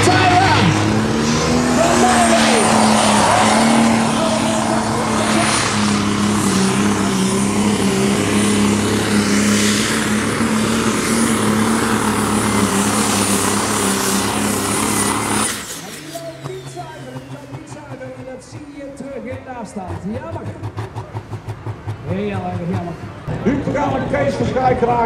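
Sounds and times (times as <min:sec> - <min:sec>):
diesel tractor engine: 0:00.0 - 0:25.0.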